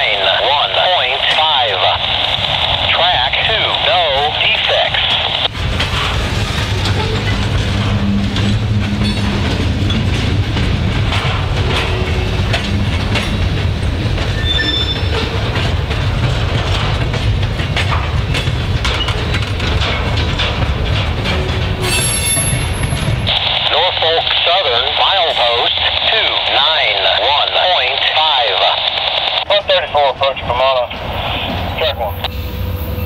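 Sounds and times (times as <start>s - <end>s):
freight train rumbling past: 0.0s - 33.0s
wheels clicking over rail joints: 5.5s - 23.3s
wheel squeals: 14.3s - 15.4s, 21.3s - 23.3s.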